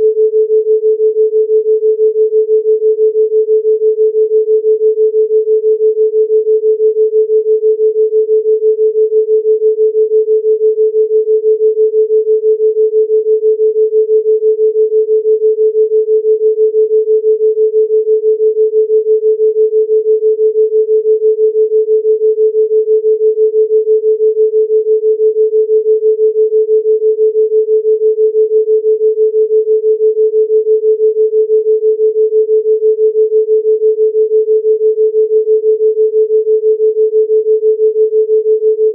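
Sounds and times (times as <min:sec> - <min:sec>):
pulsing sine tone: 0:00.0 - 0:38.9.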